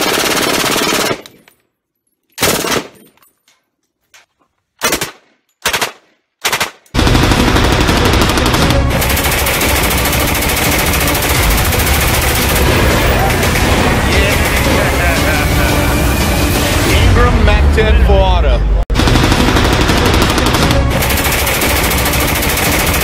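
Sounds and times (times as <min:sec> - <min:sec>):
machine gun firing bursts: 0:00.0 - 0:01.2, 0:02.4 - 0:02.9, 0:04.8 - 0:15.2, 0:19.0 - 0:23.0.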